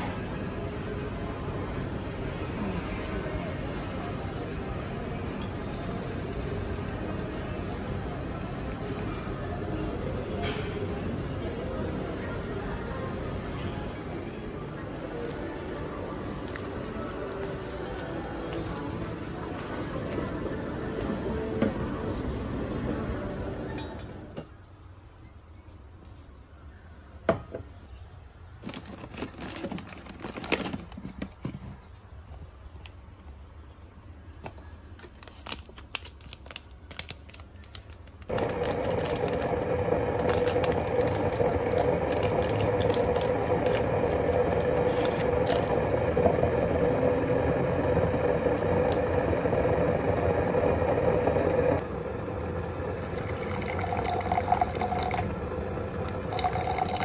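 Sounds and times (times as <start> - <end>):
electric appliance hum: 38.3 - 57.0.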